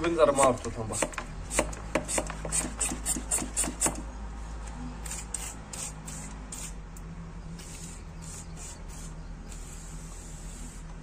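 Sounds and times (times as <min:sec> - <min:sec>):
hand pump rubbing strokes: 0:00.9 - 0:04.0, 0:05.0 - 0:06.8, 0:07.6 - 0:10.9
sprayer hissing bursts: 0:07.6 - 0:10.9.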